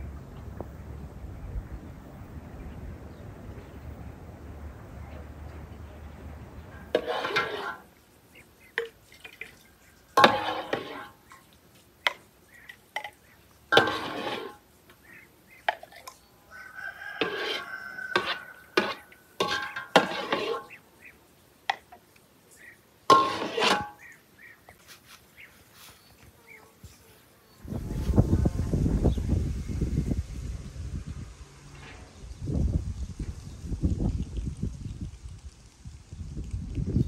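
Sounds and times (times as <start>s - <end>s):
mug scraping enamel basin: 6.8s - 7.9s, 10.2s - 11.3s, 13.7s - 14.6s, 17.2s - 20.8s, 23.1s - 24.0s.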